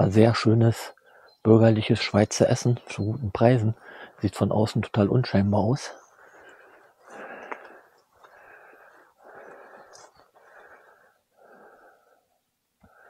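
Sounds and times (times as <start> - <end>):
person breathing heavily: 3.8 - 4.2, 6.0 - 13.0.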